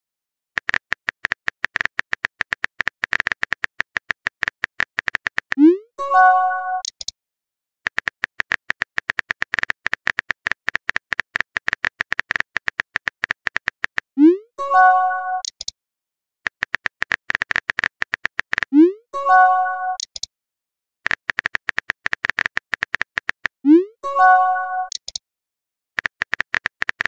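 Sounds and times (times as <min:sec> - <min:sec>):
keyboard typing clicks: 0:00.6 - 0:05.8, 0:06.6 - 0:07.2, 0:07.9 - 0:14.1, 0:14.8 - 0:15.8, 0:16.5 - 0:20.3, 0:21.0 - 0:23.5, 0:24.2 - 0:25.2, 0:26.0 - 0:27.0.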